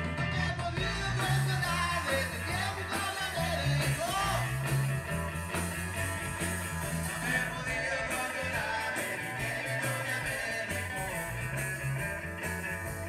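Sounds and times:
bass guitar: 0.0 - 13.0
drums: 0.0 - 13.0
electric guitar: 0.0 - 13.0
man singing: 0.2 - 4.6, 7.0 - 11.3.

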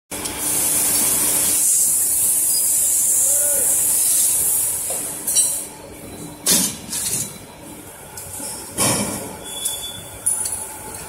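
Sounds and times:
loud air hiss: 0.4 - 5.1.

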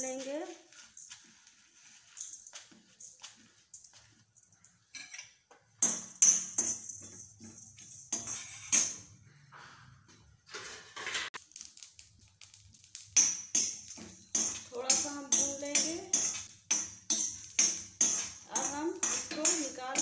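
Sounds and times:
seeds rattling in pan: 0.0 - 4.8, 11.4 - 20.0
metal spoon scraping iron pan: 4.9 - 9.1, 10.5 - 11.4, 13.2 - 20.0.

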